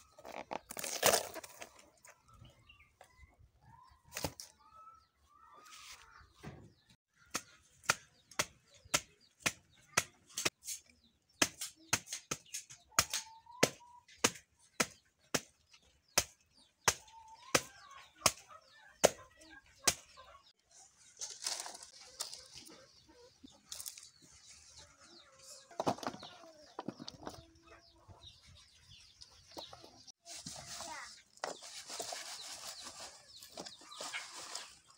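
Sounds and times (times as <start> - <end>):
machete chopping banana stem: 11.4 - 15.6, 16.2 - 17.0
chickens clucking: 16.6 - 34.9.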